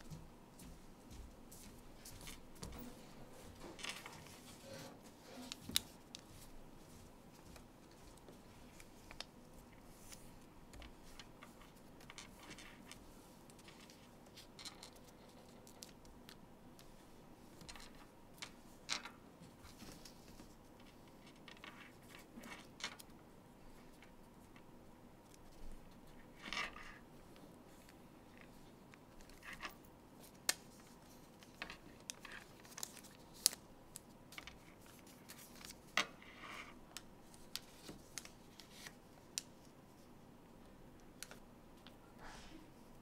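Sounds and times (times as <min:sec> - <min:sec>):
paper rustling and crinkling: 0:02.0 - 0:16.1, 0:27.7 - 0:40.1.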